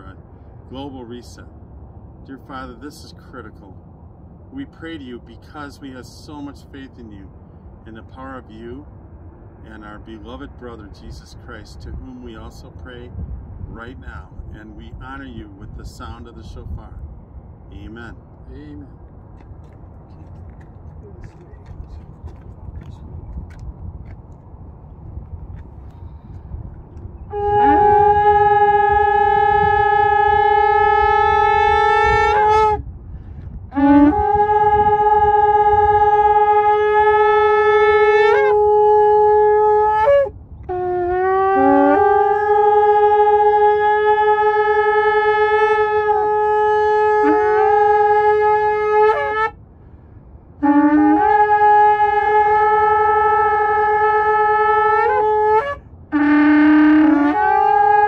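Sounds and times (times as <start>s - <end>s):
shofars blowing: 25.5s - 58.0s.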